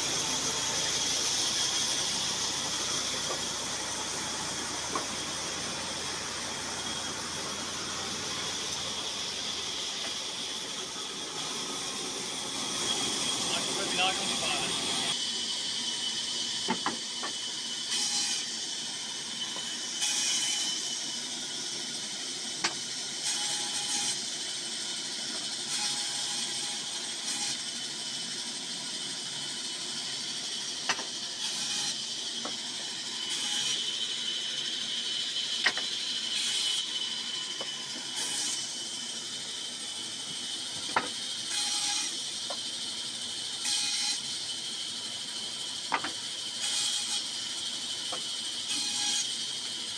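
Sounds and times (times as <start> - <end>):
band saw whining: 0.0 - 49.9
saw cutting wood hiss: 0.0 - 49.9.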